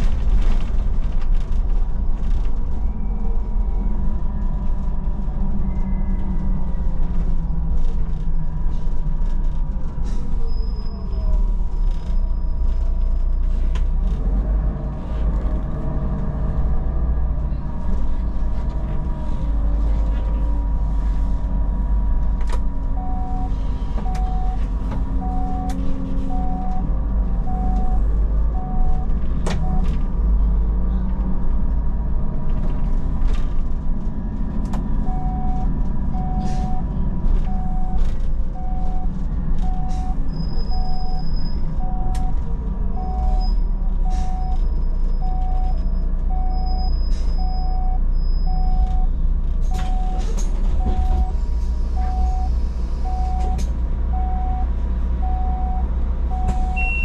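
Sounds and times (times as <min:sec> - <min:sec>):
bus engine and road drone: 0:00.0 - 0:57.0
short electronic beeps: 0:23.0 - 0:24.6, 0:25.2 - 0:26.9, 0:39.7 - 0:42.3, 0:45.2 - 0:49.1, 0:52.0 - 0:53.6, 0:54.2 - 0:57.0.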